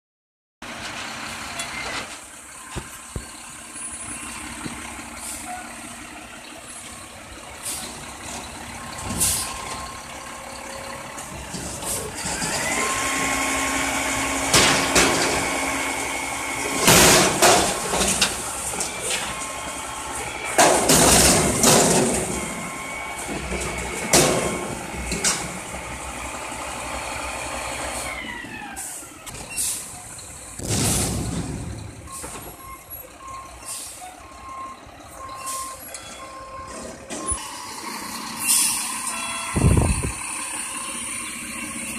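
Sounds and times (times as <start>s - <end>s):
diesel engine revving: 0.6s - 41.9s
hydraulic whine: 11.2s - 26.6s, 36.6s - 41.3s
loud metal bangs: 20.5s - 22.5s, 30.6s - 32.1s.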